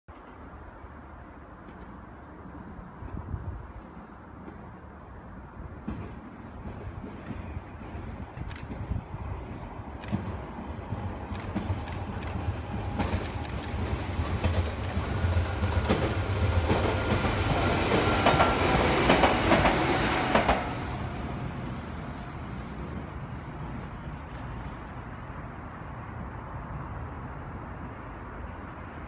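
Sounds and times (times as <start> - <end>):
train whine: 0.1 - 25.4
low train rumble: 0.1 - 29.0.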